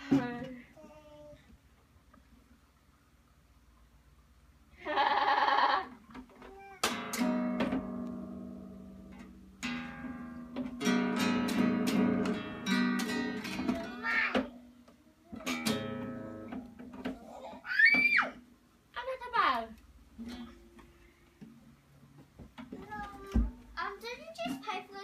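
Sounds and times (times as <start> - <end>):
acoustic guitar strumming: 6.8 - 14.6, 15.4 - 17.0.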